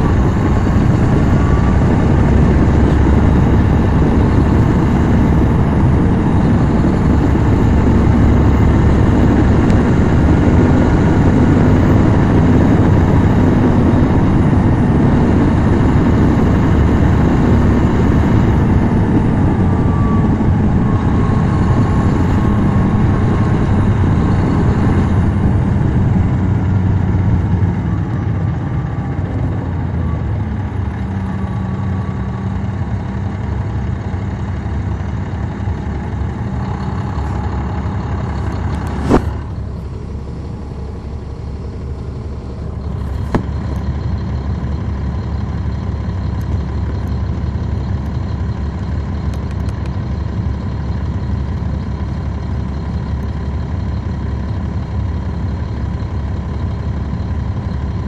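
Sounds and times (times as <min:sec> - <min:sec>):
diesel bus engine running: 0:00.0 - 0:58.0.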